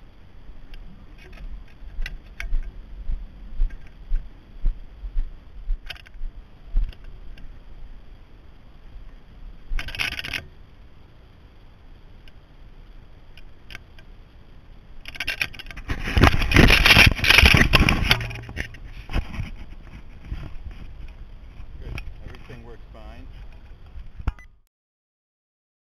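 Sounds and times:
handling scrape on microphone: 15.3s - 24.2s
rubbing and knocking on microphone: 15.7s - 22.5s.

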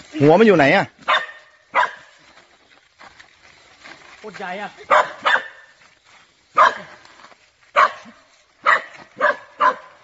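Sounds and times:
dog barking: 1.1s - 2.1s, 4.9s - 5.7s, 6.6s - 6.9s, 7.7s - 10.0s.

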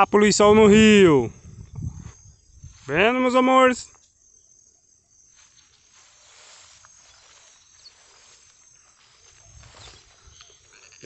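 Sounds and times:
crickets trilling: 0.0s - 11.0s
soft even hiss: 5.3s - 11.0s.

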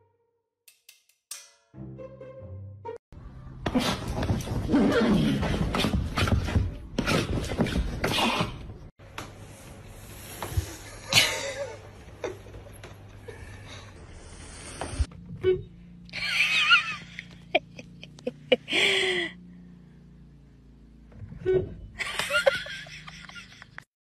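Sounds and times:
person laughing: 10.9s - 12.6s, 16.1s - 19.4s, 22.0s - 23.8s.

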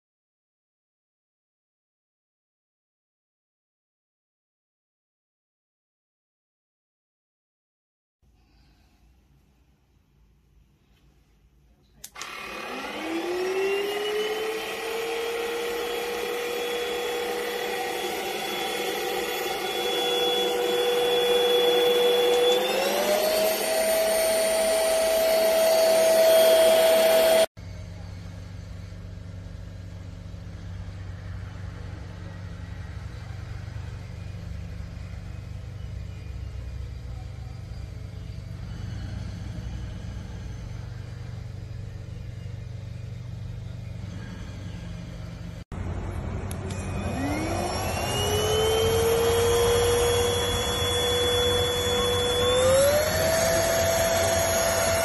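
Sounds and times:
vacuum motor high whine: 12.0s - 55.0s
steady low hum: 14.3s - 55.0s.

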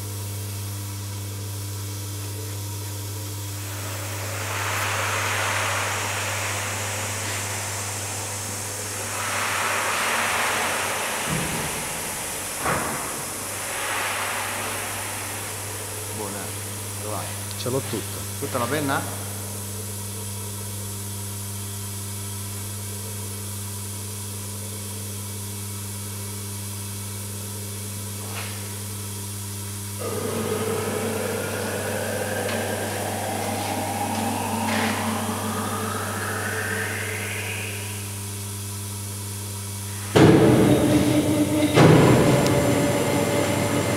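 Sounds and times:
electrical hum: 0.0s - 19.9s, 29.9s - 38.9s
hydraulic pump whine: 3.5s - 17.2s, 30.0s - 38.8s, 39.9s - 43.9s.

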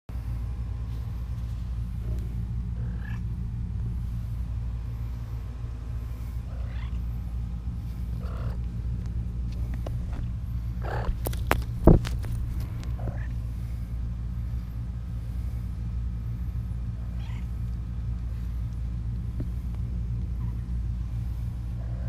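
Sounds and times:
steady low rumble: 0.1s - 22.0s
kittens mewing: 2.0s - 3.4s, 6.4s - 7.2s, 8.0s - 8.8s, 10.7s - 11.3s, 12.7s - 13.5s, 17.0s - 17.7s.

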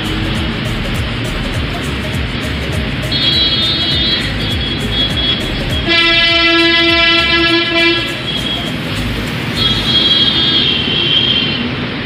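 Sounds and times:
road traffic rumble: 0.0s - 12.0s
horn blast: 3.1s - 11.6s.

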